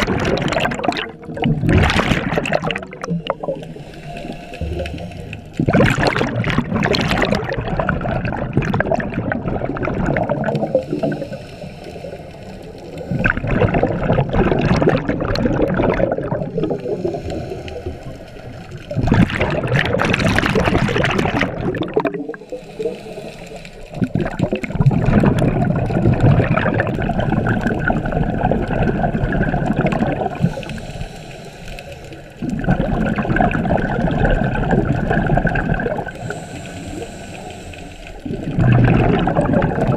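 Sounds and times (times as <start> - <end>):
bubbling exhaled air underwater: 0.0 - 39.9
diver inhaling through regulator: 3.2 - 6.2, 10.5 - 13.8, 16.5 - 18.7, 22.2 - 24.1, 30.3 - 32.5, 36.0 - 38.6.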